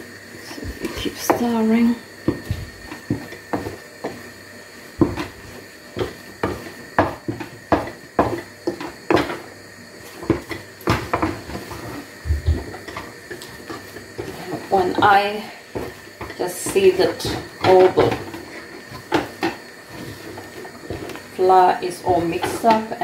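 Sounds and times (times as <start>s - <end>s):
wooden stick knocking on a pan: 6.0s - 9.4s.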